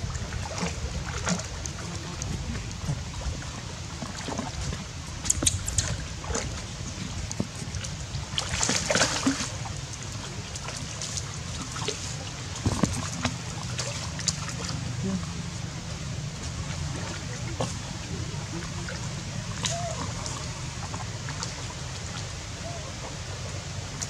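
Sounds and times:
water splashing and sloshing: 0:00.0 - 0:24.0.

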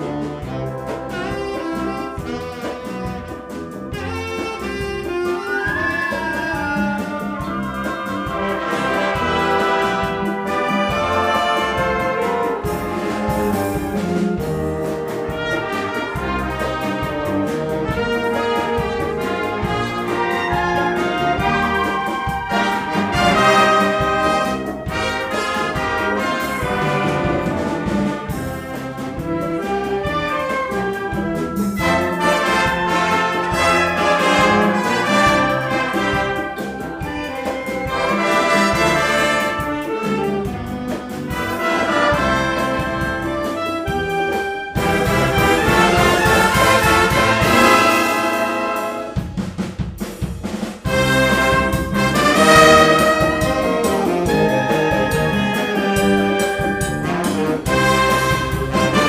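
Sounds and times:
wind band playing: 0:00.0 - 0:59.0.

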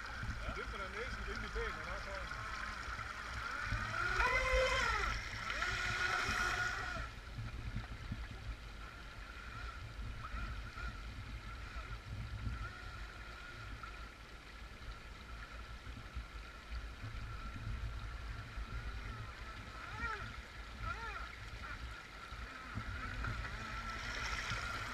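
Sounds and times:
stream rushing: 0:00.0 - 0:07.2, 0:20.8 - 0:24.9
model boat motor whining: 0:00.0 - 0:07.4, 0:08.8 - 0:14.3, 0:17.1 - 0:24.9.

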